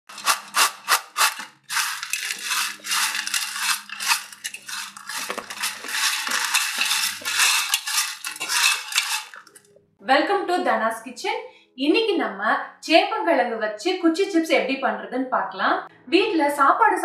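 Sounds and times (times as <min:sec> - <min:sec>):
chips crackling on a steel plate: 0:00.1 - 0:09.6
chips shaken in a glass bowl: 0:00.1 - 0:09.6.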